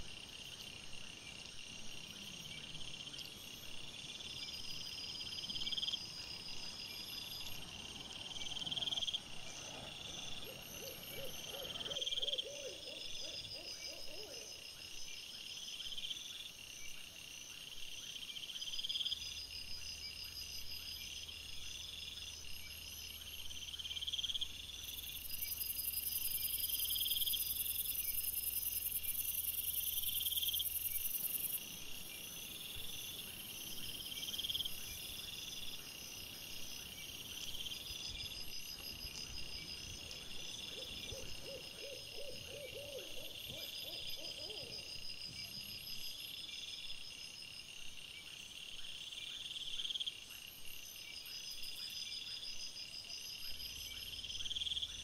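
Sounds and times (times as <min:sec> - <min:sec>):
night insects chirping: 0:00.0 - 0:55.0.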